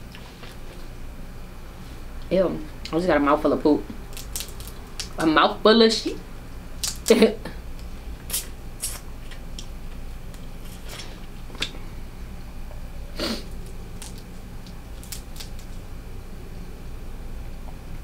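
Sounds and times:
crab shell cracking: 4.1s - 5.3s, 6.8s - 7.2s, 13.5s - 15.8s.

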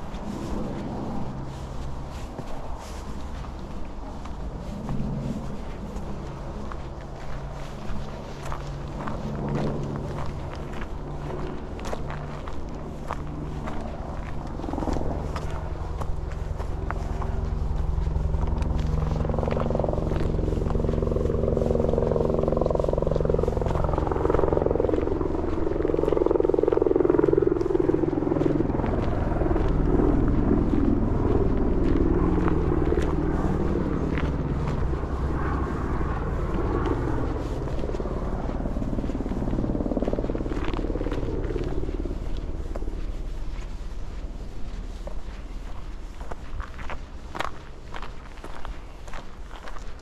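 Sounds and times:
distant engine drone: 0.0s - 50.0s.

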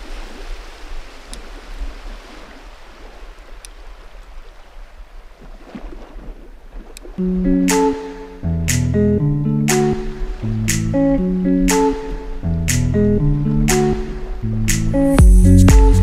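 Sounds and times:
guitar music: 7.2s - 16.0s.

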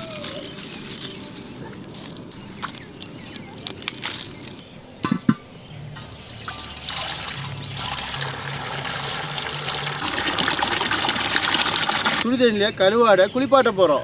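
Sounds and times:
water pouring into metal pot: 6.0s - 12.2s.

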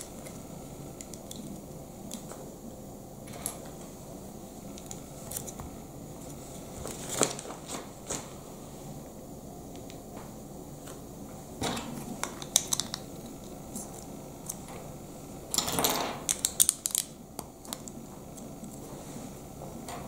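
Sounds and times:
plastic bricks clicking together: 12.2s - 13.0s.

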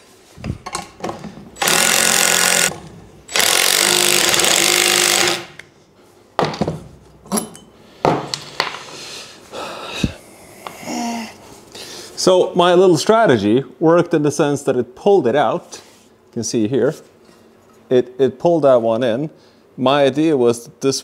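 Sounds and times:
impact wrench running: 1.6s - 5.6s.

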